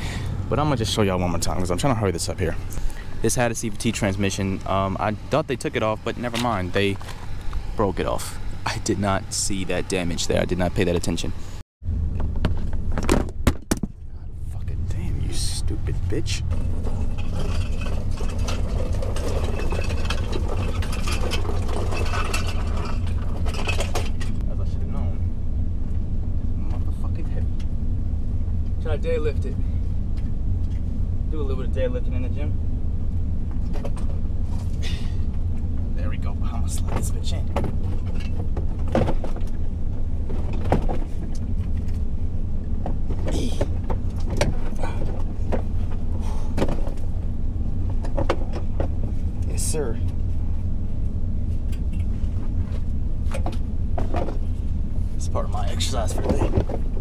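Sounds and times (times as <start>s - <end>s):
truck engine idling: 0.0s - 57.0s
light rattles and clicks: 14.9s - 24.4s
clunks and scrapes of moped loading: 16.5s - 24.4s, 36.8s - 39.6s, 40.2s - 42.0s, 42.8s - 49.3s, 55.9s - 57.0s.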